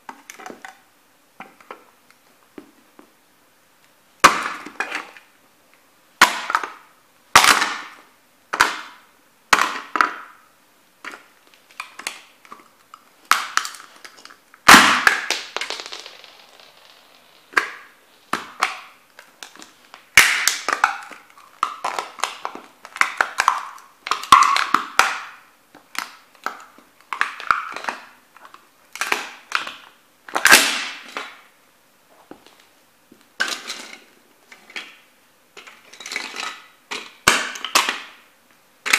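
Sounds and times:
sneakers crushing plastic toy truck: 0:13.3 - 0:16.2.

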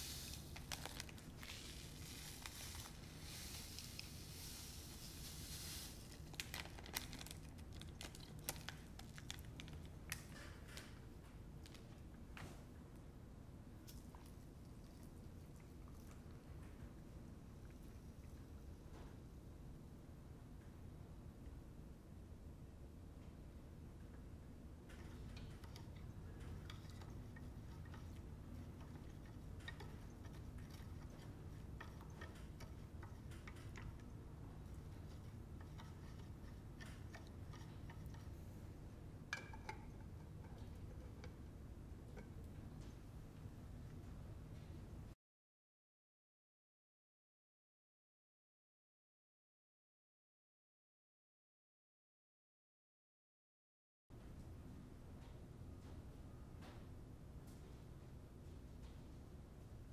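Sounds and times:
powder pouring into plastic container: 0:00.0 - 0:09.8
foil packet crinkling: 0:00.0 - 0:10.2
low steady hum: 0:00.0 - 0:45.2
stick tapping plastic container: 0:39.3 - 0:41.4.

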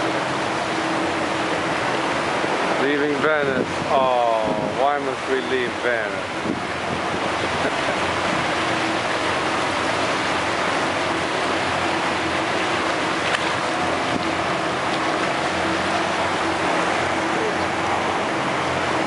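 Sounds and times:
boat engine hum: 0:00.0 - 0:19.0
wake water splashing along hull: 0:00.0 - 0:19.0.

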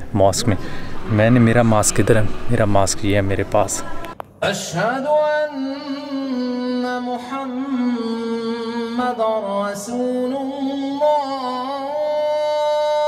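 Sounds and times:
sustained drone: 0:00.0 - 0:04.2
person singing chant-like lines: 0:00.0 - 0:13.0.

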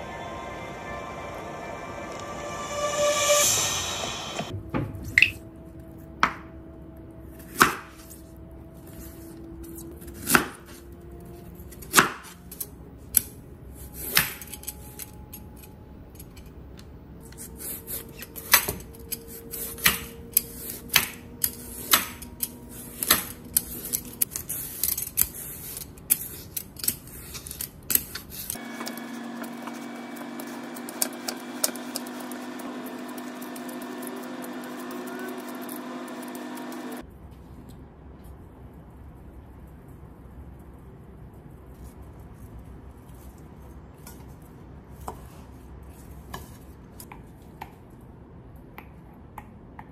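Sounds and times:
peeler scraping carrot: 0:17.2 - 0:37.0.

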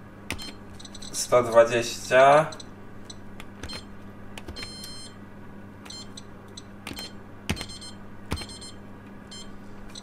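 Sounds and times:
control clicks: 0:00.3 - 0:01.2, 0:02.5 - 0:05.1, 0:05.8 - 0:10.0
oven panel beeping: 0:00.3 - 0:05.2, 0:05.8 - 0:10.0.

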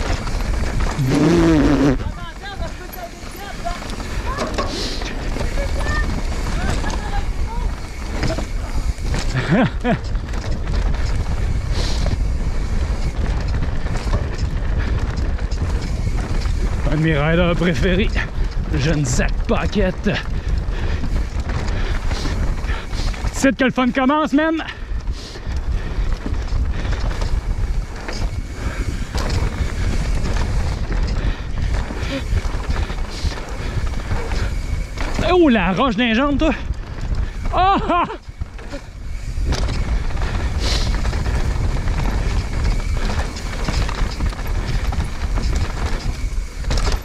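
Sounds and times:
wind buffeting microphone: 0:00.0 - 0:23.4, 0:24.7 - 0:47.0
bike rattles and clicks: 0:00.0 - 0:47.0
bike tyres rolling on dirt: 0:00.0 - 0:47.0
wind on camera microphone: 0:25.0 - 0:35.3.

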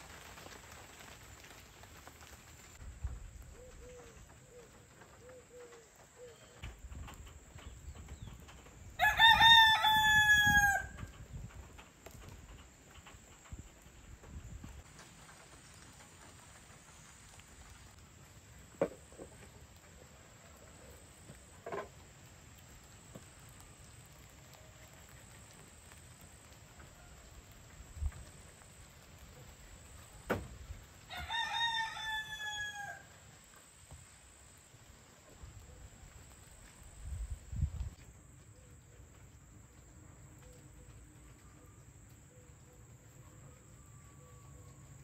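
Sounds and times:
rooster crowing: 0:09.0 - 0:11.1, 0:31.1 - 0:33.2.

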